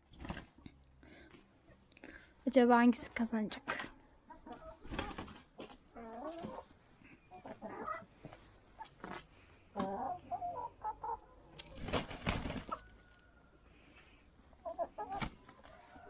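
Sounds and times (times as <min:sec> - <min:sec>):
wings flapping and scuffling: 0:00.0 - 0:00.7, 0:04.5 - 0:06.7, 0:11.5 - 0:12.9, 0:15.1 - 0:16.0
chickens clucking: 0:03.7 - 0:13.6, 0:14.4 - 0:16.0.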